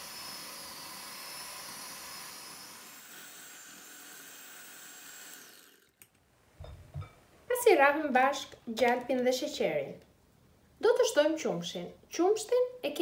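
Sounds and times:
electric hand mixer running: 0.0 - 6.0.

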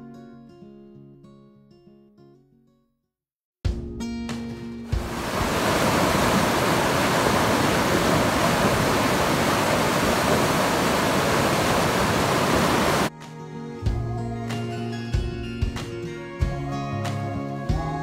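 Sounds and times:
water rushing through dam: 4.9 - 13.1.

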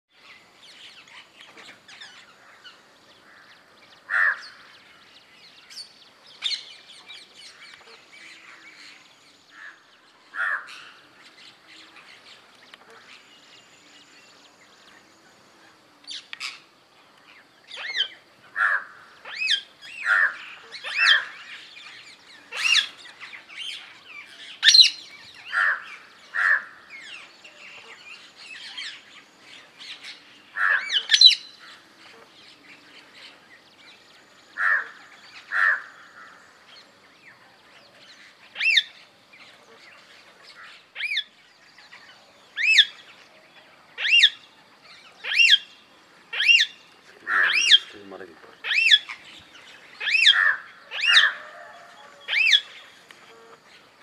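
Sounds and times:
parakeet calling: 24.6 - 26.8, 29.9 - 31.7, 44.0 - 44.4, 45.2 - 49.3, 49.9 - 51.4.

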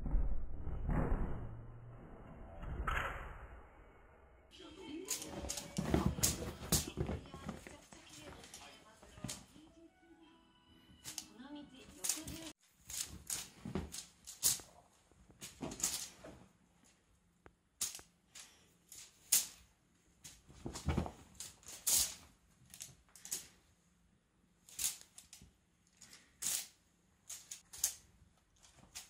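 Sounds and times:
cat claws scratching fabric: 5.0 - 9.4, 11.9 - 14.7.

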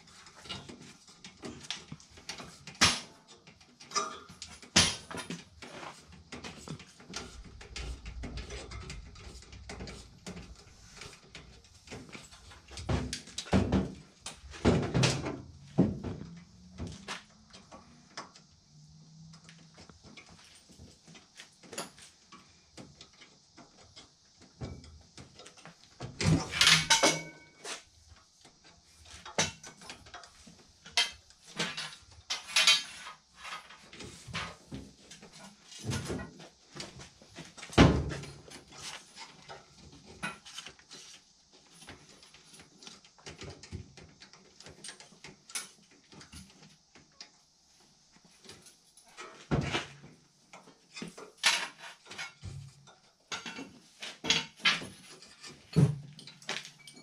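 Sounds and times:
sheet metal knocks and scrapes: 3.9 - 18.0.

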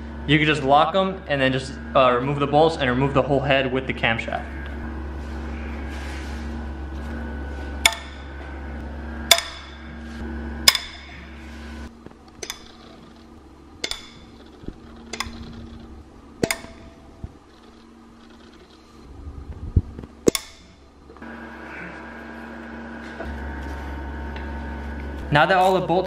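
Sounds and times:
bolts cracking loose: 12.2 - 18.8, 20.2 - 21.2.

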